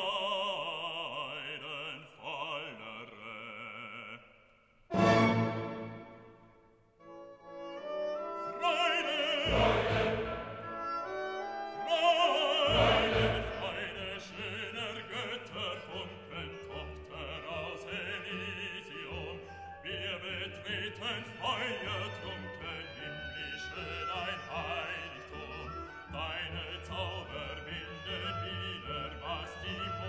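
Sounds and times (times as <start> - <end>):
operatic voice singing: 0.0 - 4.4, 8.4 - 10.7, 11.7 - 30.0
orchestra with strings: 4.9 - 30.0.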